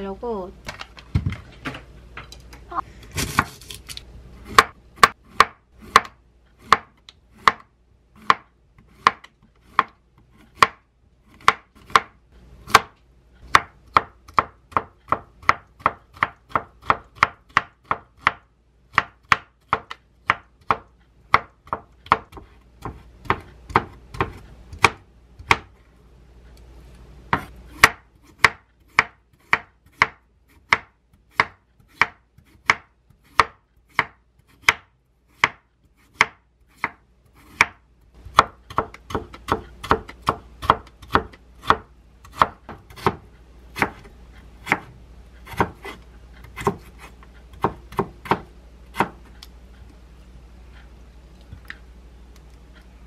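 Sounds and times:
knife chopping on wooden board: 4.4s - 25.7s, 27.3s - 49.3s.

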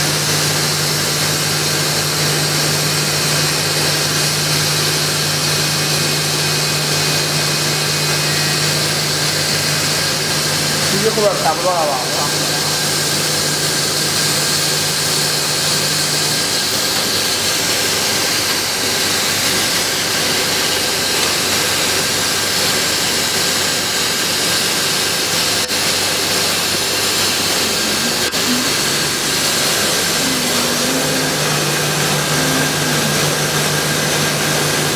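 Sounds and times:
laser cutting machine running: 0.0s - 34.9s
low hum: 27.0s - 34.7s.

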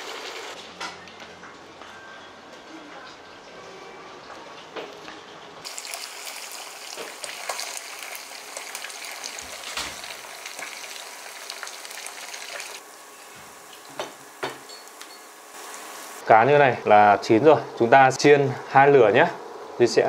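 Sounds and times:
food sizzling in hot oil: 5.6s - 16.2s.

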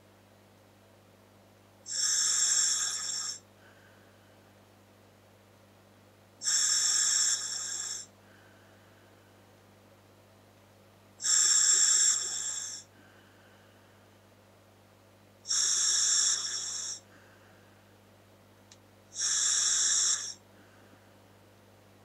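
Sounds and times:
hissing scuba regulator breaths: 1.9s - 3.8s, 6.4s - 8.1s, 11.2s - 13.5s, 15.5s - 17.4s, 19.2s - 20.4s.

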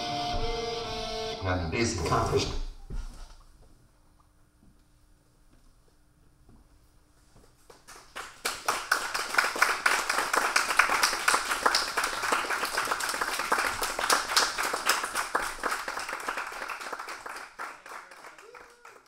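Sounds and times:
people applauding: 7.7s - 19.0s.

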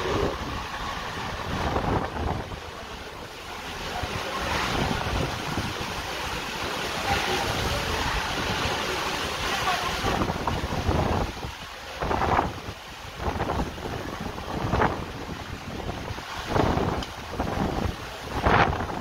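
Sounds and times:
heavy rain: 0.0s - 19.0s
wind gusts buffeting microphone: 0.0s - 19.0s.

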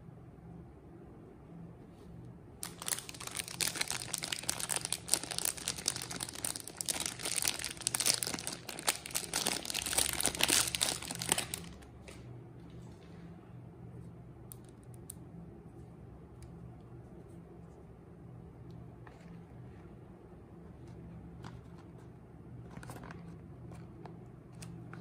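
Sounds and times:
plastic wrapper crinkling: 2.6s - 11.9s.

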